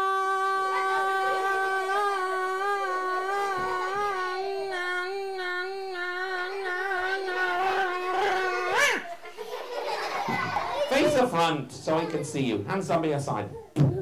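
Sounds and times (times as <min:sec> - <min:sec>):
high puppet voice singing: 0:00.0 - 0:09.1.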